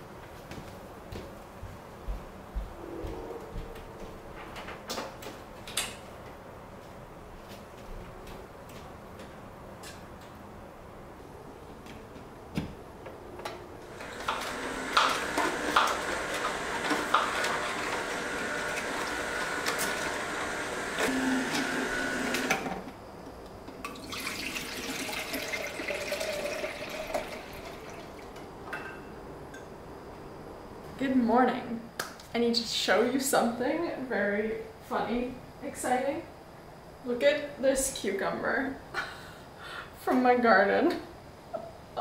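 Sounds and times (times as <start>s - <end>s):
water running from a tap: 24.0s - 28.2s.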